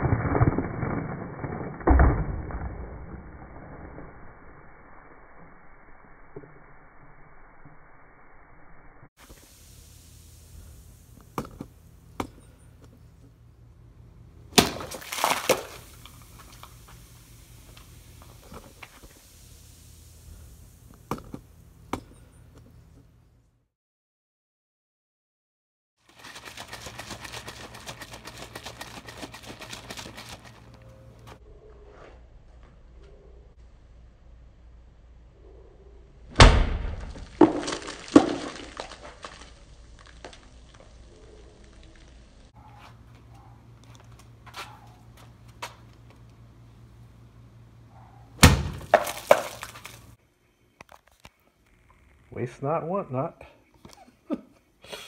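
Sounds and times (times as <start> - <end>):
crackling spattering debris: 0.0 - 4.2, 36.4 - 42.5, 48.4 - 50.2
plastic bottle bursting bang: 14.6 - 15.4, 36.4 - 38.5, 48.4 - 49.6
loud bang: 36.3 - 37.2.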